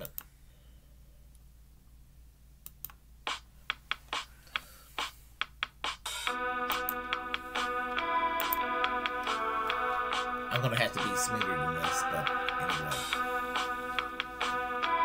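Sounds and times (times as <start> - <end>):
music: 3.3 - 15.0
computer keys clicking: 6.7 - 7.0.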